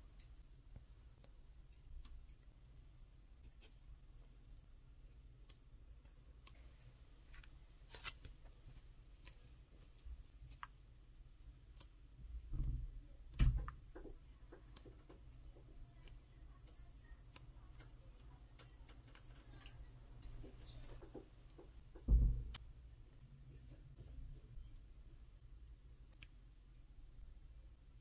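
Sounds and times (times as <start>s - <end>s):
book pages turning: 7.3s - 10.8s
soft thump: 22.1s - 22.6s.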